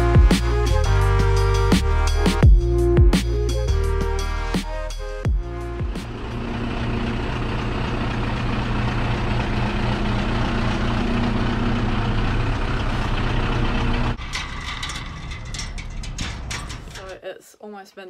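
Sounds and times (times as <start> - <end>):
truck engine running: 0.0 - 17.1
chain-link gate clicks and rattles: 14.2 - 17.2.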